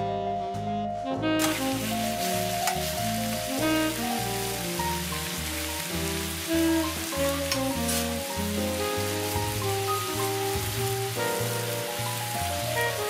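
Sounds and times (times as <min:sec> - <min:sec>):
background music: 0:00.0 - 0:13.0
meat sizzling in a frying pan: 0:01.4 - 0:13.0
scraping in a pan: 0:06.9 - 0:08.3.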